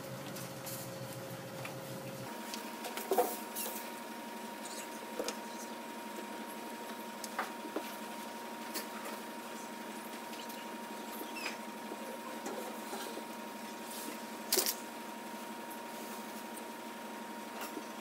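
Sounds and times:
steady background hum: 0:00.0 - 0:18.0
marker squeaks and cap clicks: 0:04.6 - 0:05.0, 0:10.3 - 0:11.6.

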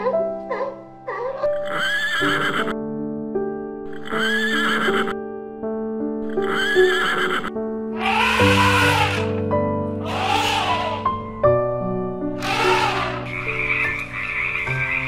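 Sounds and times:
piano music: 0:00.0 - 0:15.0
high animal call: 0:00.5 - 0:02.8, 0:03.9 - 0:05.2, 0:06.2 - 0:09.4, 0:10.0 - 0:11.2, 0:12.4 - 0:15.0.

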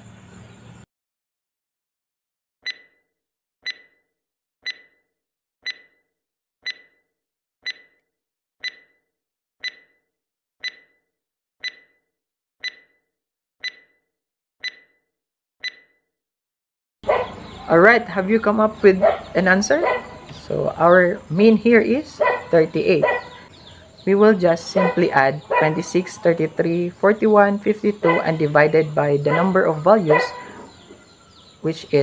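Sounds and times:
timer ticking: 0:02.6 - 0:03.0, 0:03.6 - 0:04.0, 0:04.6 - 0:05.0, 0:05.6 - 0:06.0, 0:06.6 - 0:07.0, 0:07.6 - 0:08.0, 0:08.6 - 0:09.0, 0:09.6 - 0:10.0, 0:10.6 - 0:11.0, 0:11.6 - 0:12.0, 0:12.6 - 0:13.0, 0:13.6 - 0:14.0, 0:14.6 - 0:14.9, 0:15.6 - 0:15.9.

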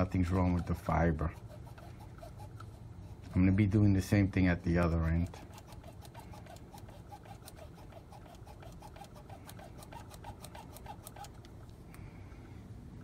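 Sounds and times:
faint rhythmic scratching ticks: 0:00.0 - 0:03.8.

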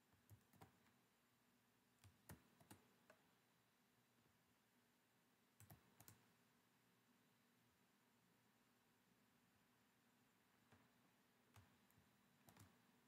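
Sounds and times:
soft clicks: 0:05.6 - 0:06.3, 0:10.6 - 0:12.9.

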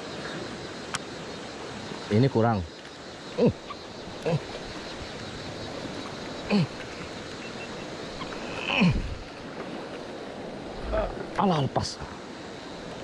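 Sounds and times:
river water rushing: 0:03.5 - 0:13.0.

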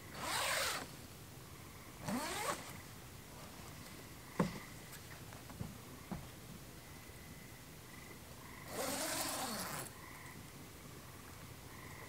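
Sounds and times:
tent zipper pulled: 0:00.1 - 0:00.9, 0:02.0 - 0:02.8, 0:08.7 - 0:10.0.

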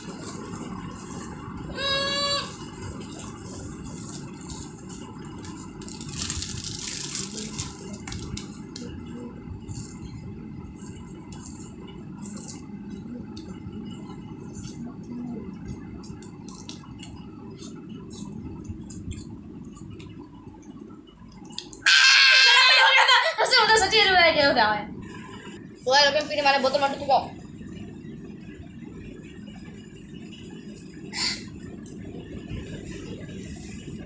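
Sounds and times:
children chewing and crunching candy: 0:00.0 - 0:10.1, 0:11.2 - 0:20.2.

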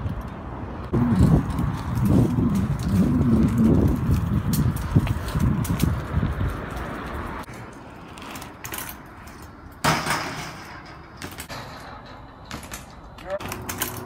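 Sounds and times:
bike rolling over pavement: 0:00.0 - 0:14.0
bike striking brick ledge: 0:09.8 - 0:14.0.

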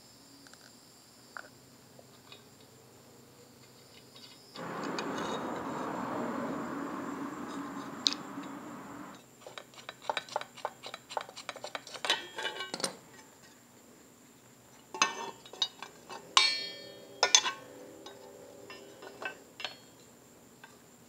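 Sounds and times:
steady rushing noise: 0:04.6 - 0:09.2, 0:15.8 - 0:19.6.

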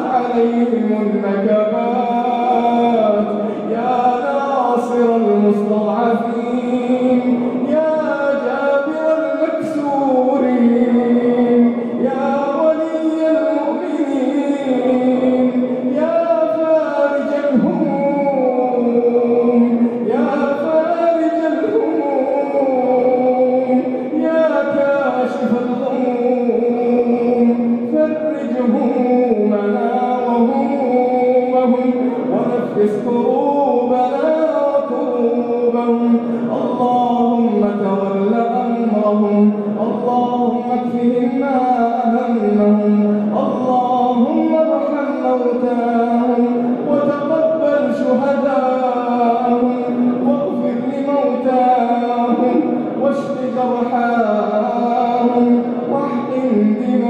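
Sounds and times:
melodic chanting: 0:00.0 - 0:57.0.

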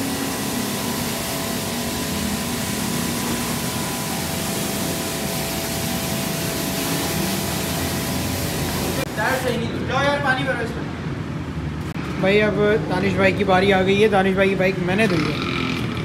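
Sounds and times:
pressure washer motor humming: 0:00.0 - 0:09.4
water jet hissing: 0:00.0 - 0:09.6.

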